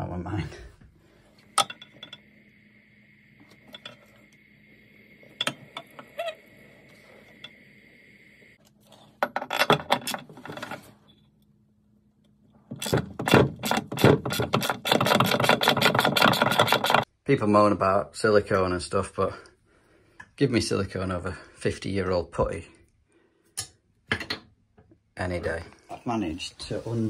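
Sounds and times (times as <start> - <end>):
faint steady high tone: 1.3 - 8.6.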